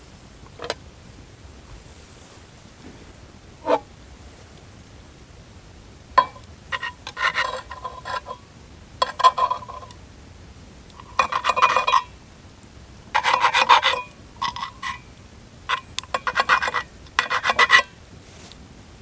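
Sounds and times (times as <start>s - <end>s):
knife scraping on pan: 3.6s - 3.8s, 6.2s - 8.4s, 9.0s - 9.9s, 11.0s - 12.1s, 13.2s - 15.1s, 15.7s - 18.0s.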